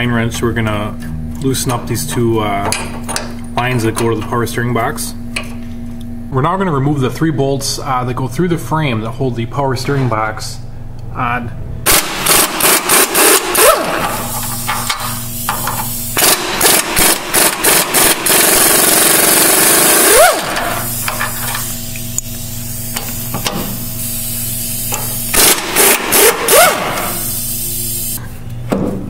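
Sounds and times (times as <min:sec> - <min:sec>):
impact wrench rattling: 0:11.9 - 0:21.8, 0:24.8 - 0:27.4.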